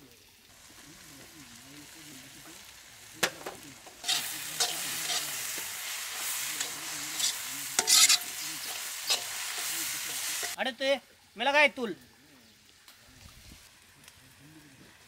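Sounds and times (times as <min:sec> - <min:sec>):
onions sizzling in oil: 0:00.0 - 0:10.6
utensil knocking and scraping pan: 0:03.2 - 0:10.6.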